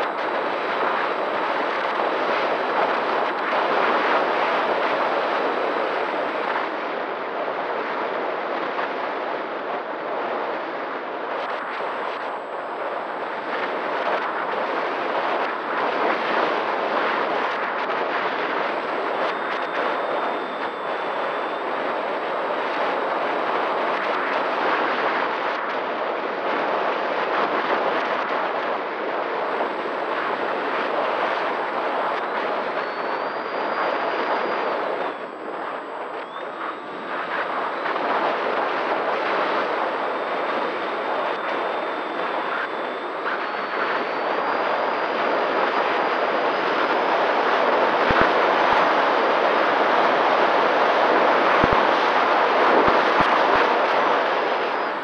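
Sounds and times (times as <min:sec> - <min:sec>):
wind rushing over microphone: 0:00.0 - 0:55.0
electric motor and propeller whine: 0:11.6 - 0:25.0, 0:27.8 - 0:55.0.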